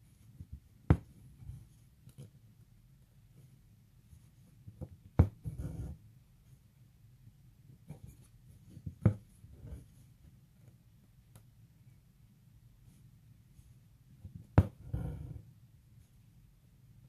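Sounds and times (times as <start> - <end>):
needle tapping fabric: 0.3 - 2.3, 4.6 - 5.9, 14.2 - 15.4.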